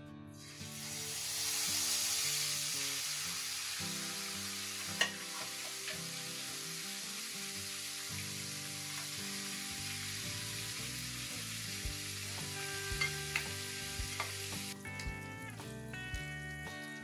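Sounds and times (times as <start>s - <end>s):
chicken deep-frying in oil: 0.4s - 15.2s
spatula clinking against pan: 5.0s - 5.3s
soft background music: 7.7s - 17.0s.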